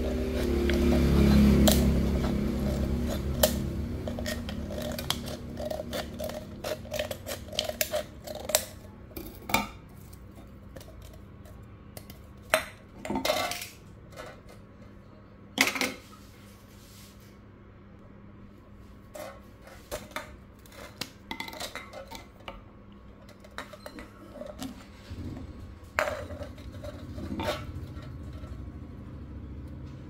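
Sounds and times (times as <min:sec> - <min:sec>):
scissors snipping drink can: 0:00.0 - 0:08.8.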